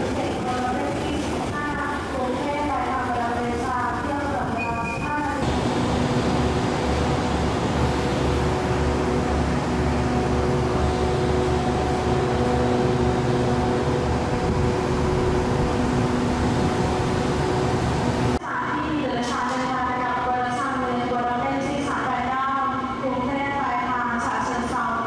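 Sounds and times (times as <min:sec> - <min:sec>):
diesel train idling: 0:00.0 - 0:18.4.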